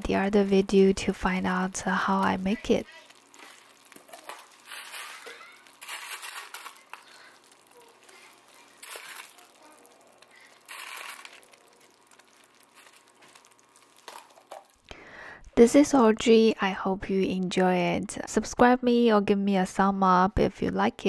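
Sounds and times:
crinkling rustles: 0:02.2 - 0:14.9.

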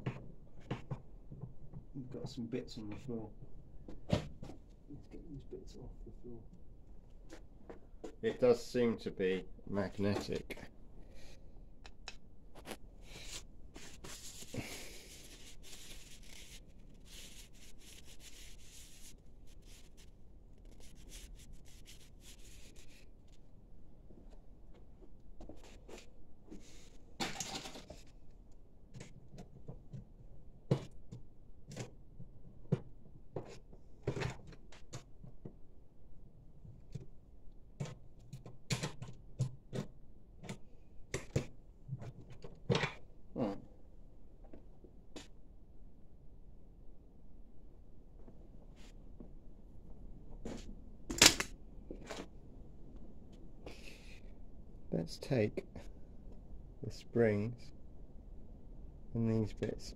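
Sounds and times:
paper rustling: 0:12.6 - 0:23.0.

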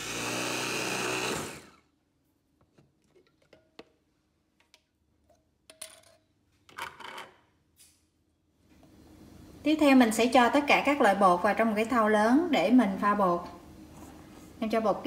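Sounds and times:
electric food chopper running: 0:00.0 - 0:01.9.

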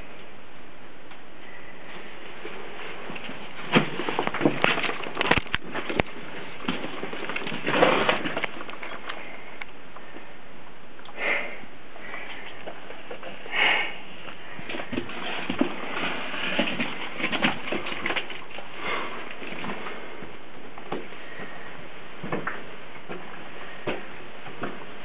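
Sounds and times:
breathy noises: 0:01.3 - 0:25.0
footsteps on debris: 0:02.3 - 0:09.2.

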